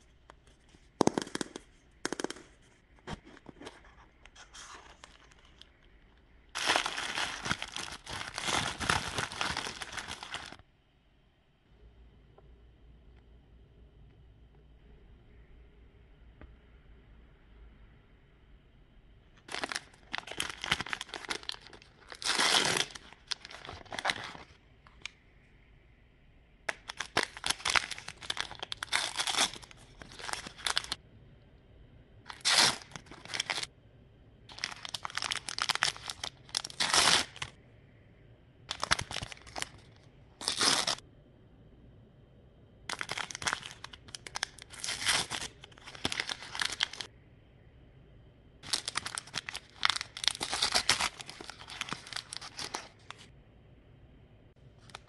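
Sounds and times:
plastic wrapper crinkling and tearing: 6.5s - 10.6s, 19.4s - 25.2s, 26.7s - 31.0s, 32.3s - 33.7s, 34.5s - 37.6s, 38.7s - 41.0s, 42.9s - 47.1s, 48.6s - 53.3s.

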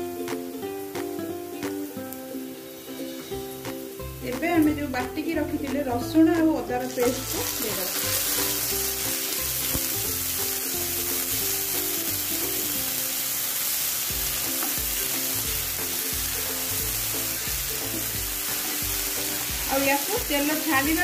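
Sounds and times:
background music: 0.0s - 21.0s
onions sizzling in oil: 0.0s - 21.0s.

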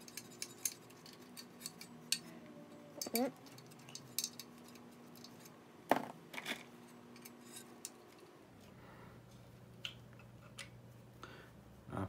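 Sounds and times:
metal parts clicking and knocking: 0.0s - 2.3s, 2.9s - 5.6s
faint steady hum: 0.0s - 12.0s.

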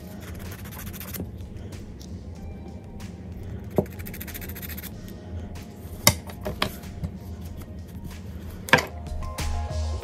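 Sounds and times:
nail buffer scratching fingernail: 0.0s - 1.3s, 3.7s - 5.0s.

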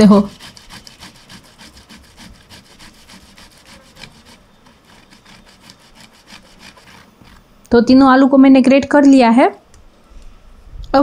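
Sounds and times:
potato rasping on a grater: 0.0s - 7.4s.

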